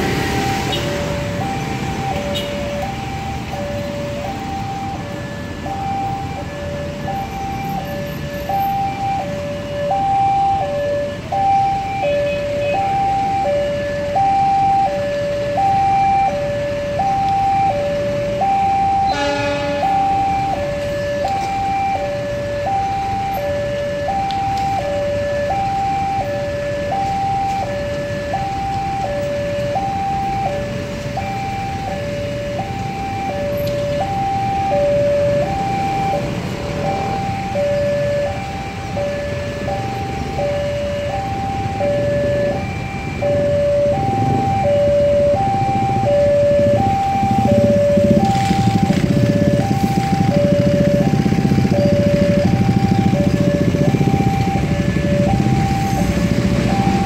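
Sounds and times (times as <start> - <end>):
level-crossing two-tone alarm: 0.0 - 57.0
traffic hum: 0.0 - 57.0
horn: 19.1 - 20.0.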